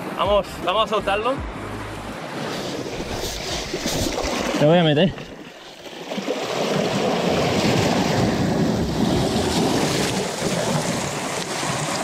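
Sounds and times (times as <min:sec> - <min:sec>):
sea water washing over rocks: 0:02.2 - 0:12.0
wind noise on microphone: 0:06.7 - 0:12.0.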